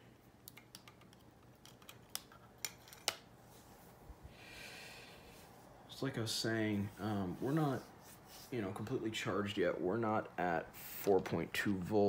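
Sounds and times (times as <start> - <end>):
soft rustle: 3.4 - 4.3, 5.2 - 9.0.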